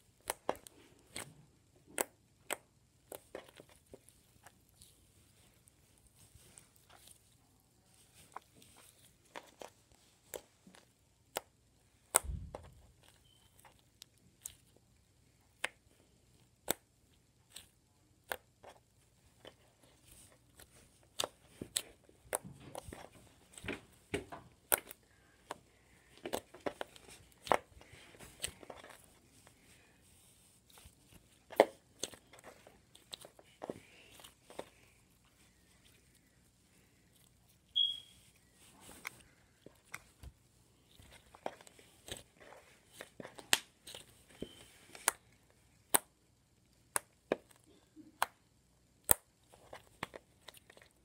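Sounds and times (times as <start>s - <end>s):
slime clicking and popping: 11.3s - 13.8s, 45.9s - 46.1s, 49.0s - 50.8s.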